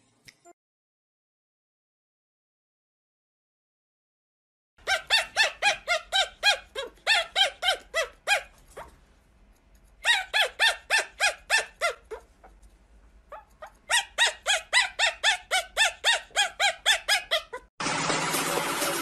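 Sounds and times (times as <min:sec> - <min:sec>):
puppy yapping: 0:04.8 - 0:09.0, 0:10.0 - 0:12.7, 0:13.3 - 0:17.7.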